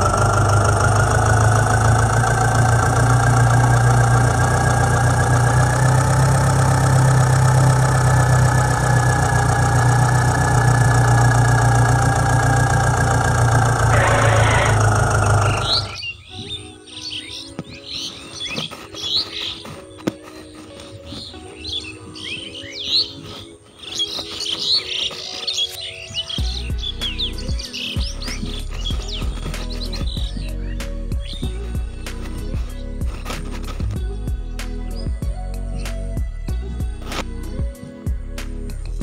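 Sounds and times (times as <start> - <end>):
tractor engine running: 0.0 - 16.3, 26.4 - 34.8
birds chirping: 9.3 - 33.1.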